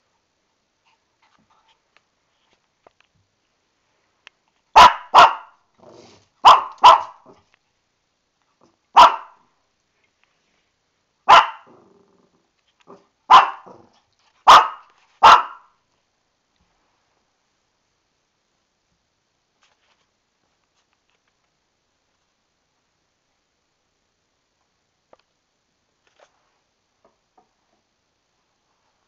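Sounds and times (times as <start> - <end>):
puppy barking: 4.8 - 5.6, 6.4 - 7.4, 9.0 - 9.4, 11.3 - 11.7, 13.3 - 15.7
puppy grumbling low: 11.7 - 13.0.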